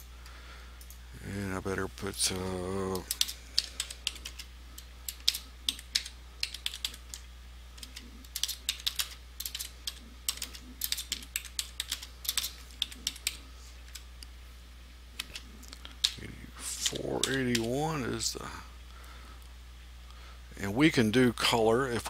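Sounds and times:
typing on computer keyboard: 3.0 - 4.5, 5.1 - 7.2, 7.8 - 13.4.

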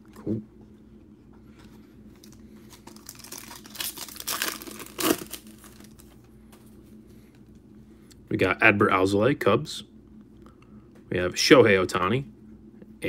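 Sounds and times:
foil wrapper crinkling and tearing: 2.2 - 6.1.

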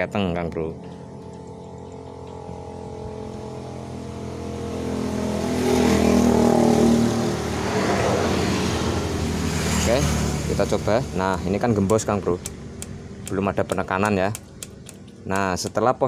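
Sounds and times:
vehicle engine passing by: 0.8 - 13.2.

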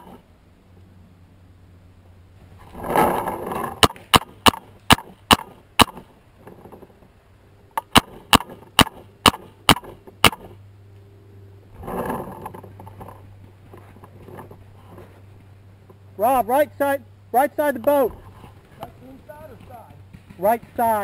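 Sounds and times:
paintball marker firing pops: 3.8 - 6.1, 7.8 - 10.5.

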